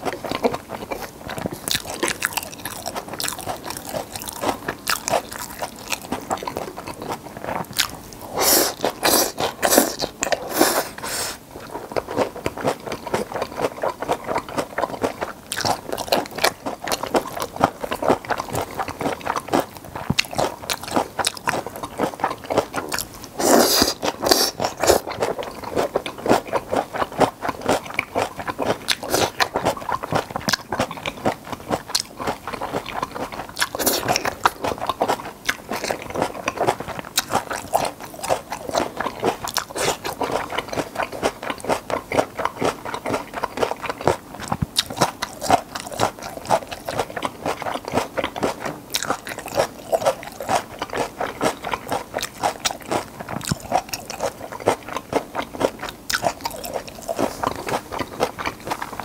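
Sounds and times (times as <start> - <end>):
crunchy chewing: 0.0 - 59.0
slurping: 8.2 - 11.4, 23.4 - 25.3, 33.6 - 34.6.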